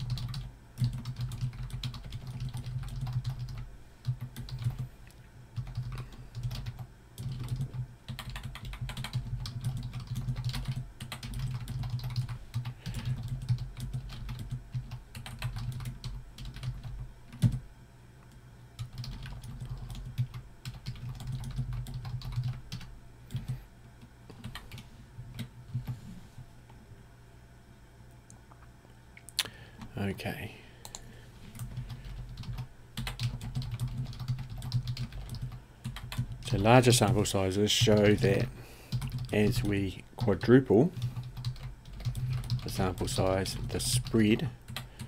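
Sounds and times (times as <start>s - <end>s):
computer keyboard typing: 0.0s - 4.8s, 5.6s - 17.6s, 18.8s - 23.6s, 24.3s - 26.0s, 30.8s - 37.2s, 37.8s - 45.0s.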